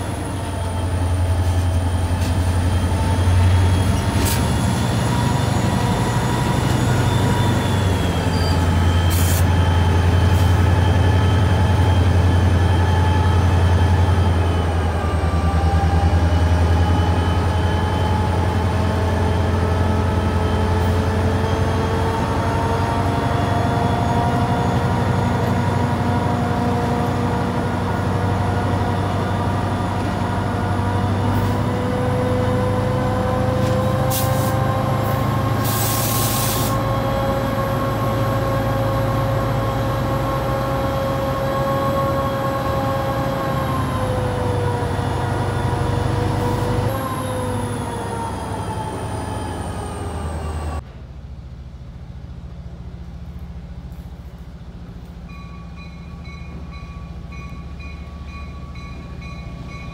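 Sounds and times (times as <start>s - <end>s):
diesel locomotive engine rumble: 0.0s - 59.9s
air hissing: 35.6s - 36.8s.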